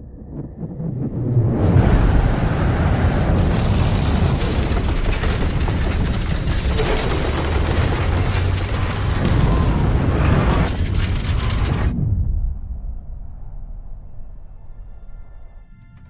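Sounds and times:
rumbling roar with crackles: 0:00.0 - 0:12.1.

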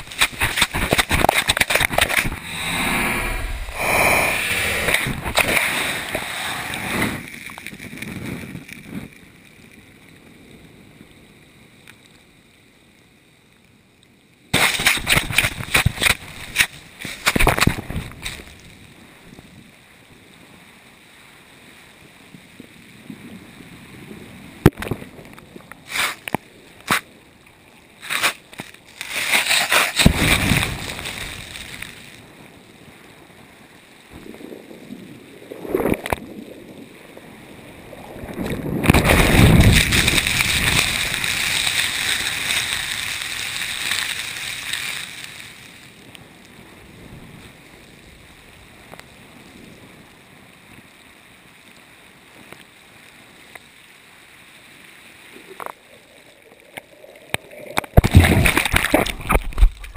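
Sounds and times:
surf washing over: 0:00.0 - 0:09.2, 0:28.0 - 0:32.5, 0:34.1 - 0:47.2, 0:54.8 - 0:59.9.

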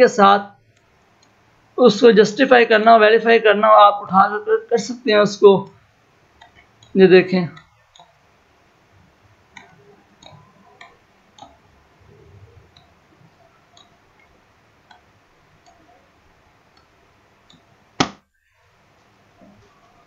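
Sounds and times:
computer mouse clicks: 0:06.4 - 0:08.2, 0:09.5 - 0:11.6, 0:12.6 - 0:16.0.

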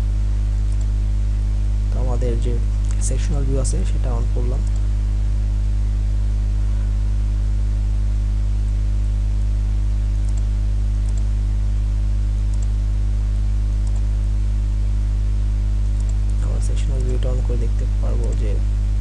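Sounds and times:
electrical mains hum: 0:00.0 - 0:19.0
computer mouse clicks: 0:00.7 - 0:00.9, 0:04.6 - 0:04.9, 0:10.2 - 0:11.3, 0:12.5 - 0:12.8, 0:13.8 - 0:14.1, 0:15.9 - 0:17.2, 0:18.2 - 0:18.5.

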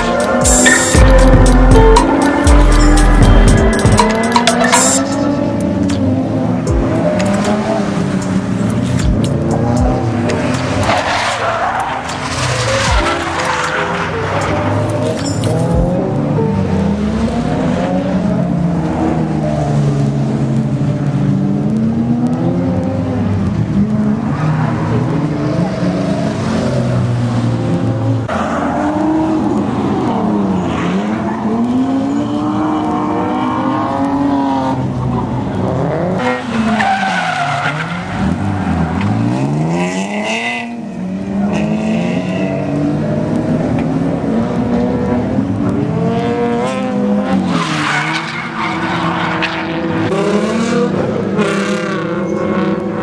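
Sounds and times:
tyre squeal: 0:00.0 - 0:01.2
car engines revving hard: 0:00.0 - 0:53.0.

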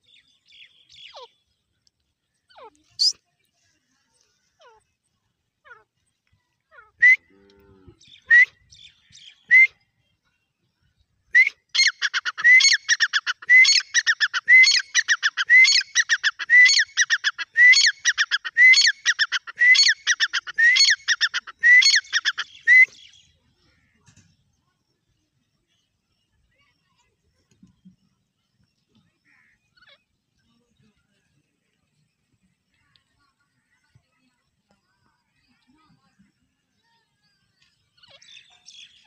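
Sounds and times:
francolin calling: 0:11.8 - 0:23.9.

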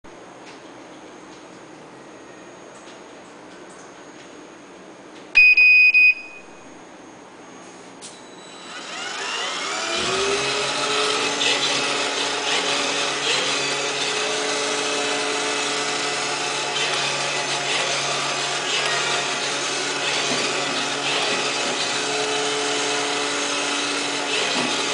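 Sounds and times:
loud electronic beep: 0:05.4 - 0:06.6
robot cleaner motor whine: 0:08.5 - 0:24.9.

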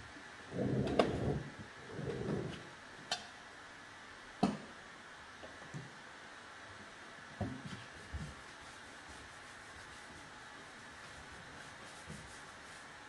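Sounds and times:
paintbrush scrubbing on wood: 0:07.7 - 0:13.0.

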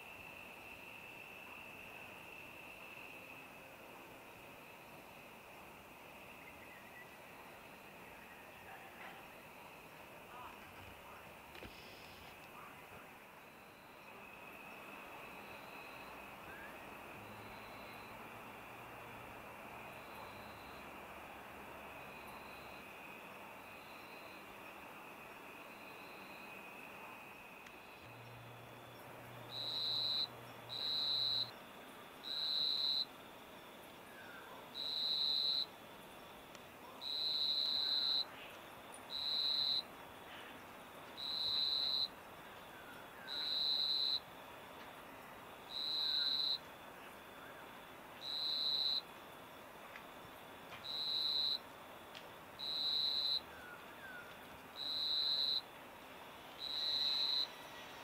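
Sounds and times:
cricket trilling: 0:21.9 - 0:51.7, 0:52.6 - 0:55.7, 0:56.5 - 0:58.0.

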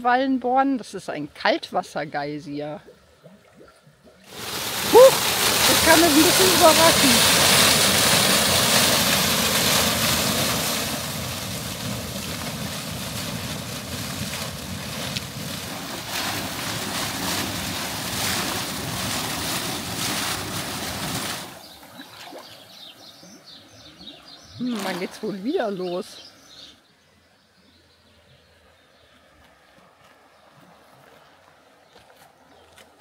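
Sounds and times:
geyser water gushing and splashing: 0:04.2 - 0:23.4, 0:24.0 - 0:26.2.

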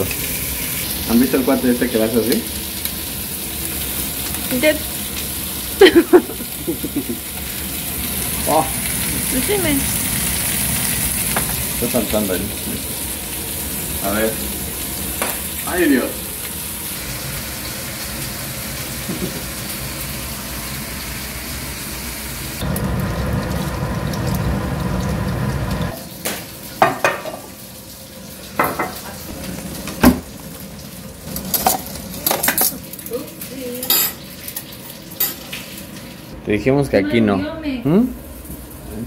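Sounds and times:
oil sizzling in frying pan: 0:00.0 - 0:36.4, 0:37.6 - 0:39.0
batter frying hiss: 0:00.0 - 0:39.0
utensils and dishes clinking: 0:31.2 - 0:36.0.

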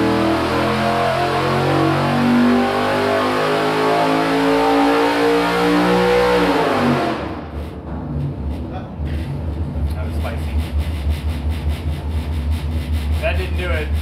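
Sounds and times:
engine revving at full throttle: 0:00.0 - 0:07.5.

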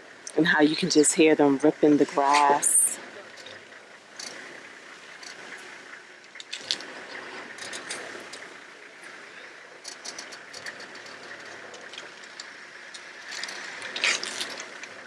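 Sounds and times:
elephants ripping up grass: 0:13.4 - 0:14.8.

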